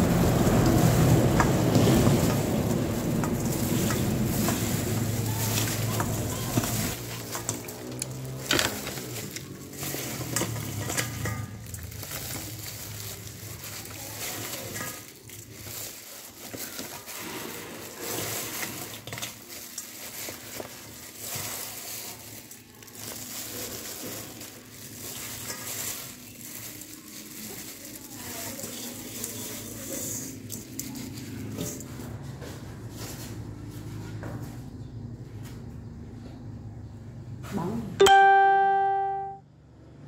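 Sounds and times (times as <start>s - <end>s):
plastic gloves crinkling: 0.0s - 31.9s
fried chicken rustling: 0.0s - 34.7s.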